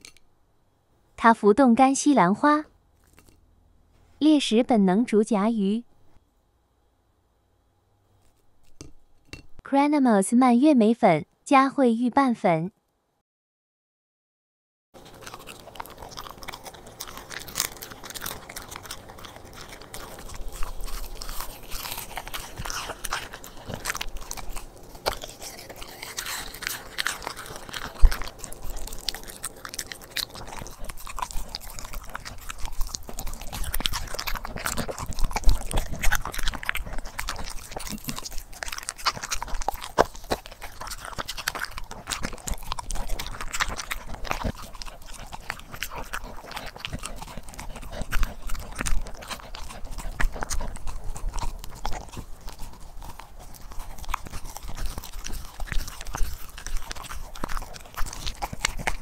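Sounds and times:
teeth crunching and clicking: 0:00.0 - 0:00.2, 0:03.0 - 0:03.4, 0:15.0 - 0:59.0
dog chewing raw meat: 0:15.0 - 0:59.0.

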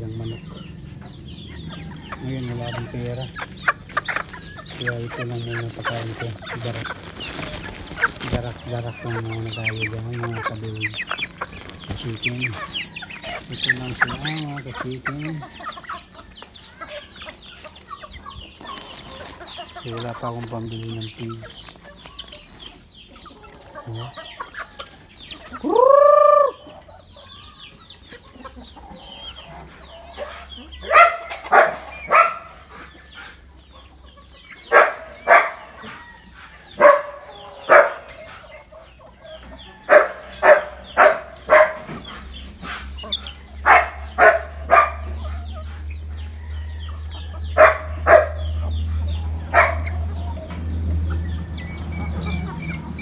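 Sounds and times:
chickens clucking and squawking: 0:00.0 - 0:53.0
short loud chicken calls: 0:25.4 - 0:26.8
loud rising and falling call: 0:25.6 - 0:26.7.

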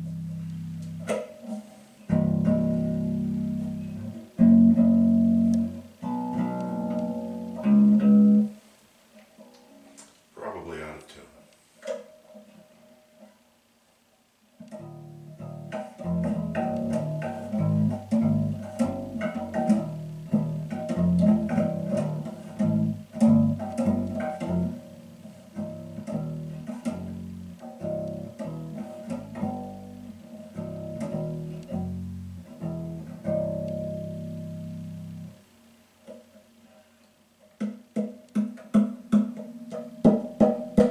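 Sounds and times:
fretless electric bass notes: 0:00.0 - 0:01.3, 0:02.1 - 0:08.6, 0:14.7 - 0:35.5.

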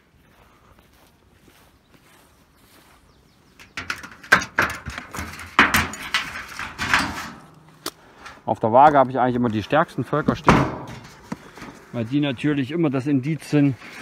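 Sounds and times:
footsteps through tall grass: 0:00.0 - 0:03.8.

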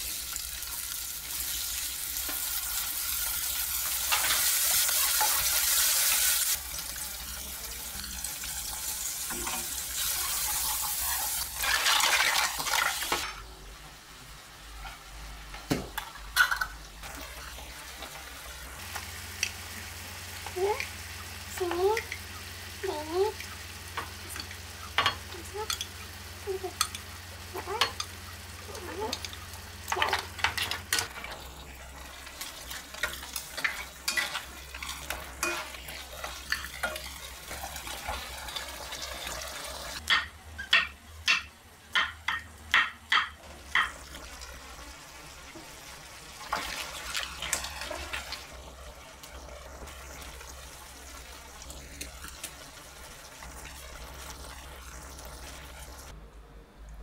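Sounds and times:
sauce sizzling in a pan: 0:00.0 - 0:13.2, 0:16.5 - 0:40.0, 0:43.4 - 0:56.1.

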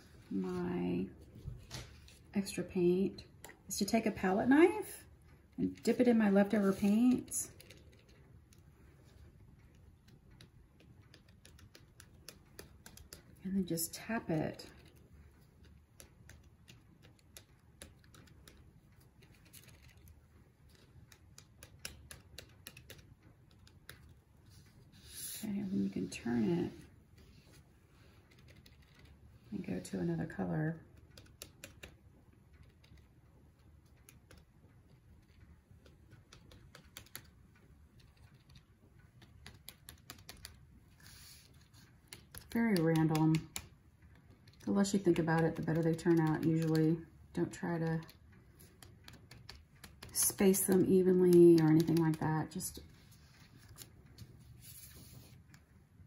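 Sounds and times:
palette knife tapping on paper: 0:49.1 - 0:52.2.

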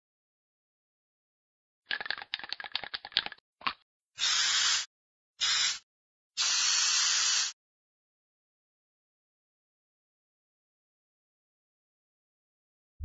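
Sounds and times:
bursts of hissing noise: 0:06.4 - 0:07.5.

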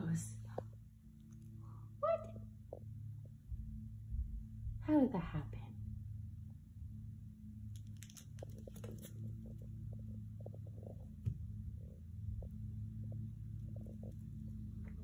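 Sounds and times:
steady low hum: 0:00.0 - 0:15.0
claws clicking on hard floor: 0:07.7 - 0:09.7
puppy playing with toys: 0:07.7 - 0:09.8.

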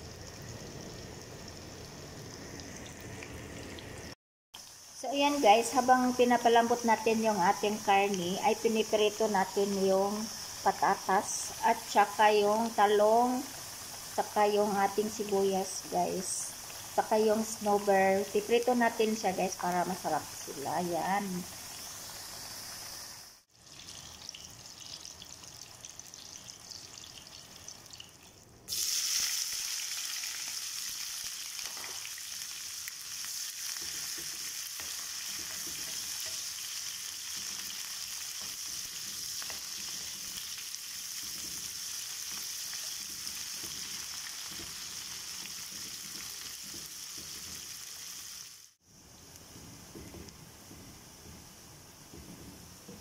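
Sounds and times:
oil sizzling in a pan: 0:00.0 - 0:53.0
onions frying in hot oil: 0:00.0 - 0:53.0
wooden spoon stirring: 0:33.8 - 0:47.8.

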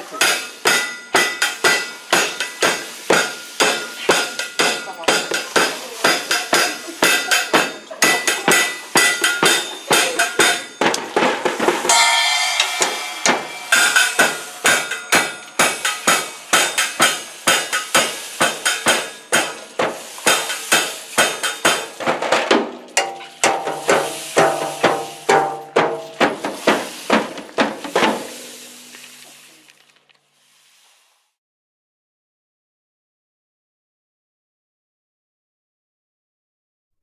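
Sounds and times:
drum kit steady beat: 0:00.0 - 0:29.6
cymbal crash: 0:11.8 - 0:22.0, 0:23.0 - 0:27.3.

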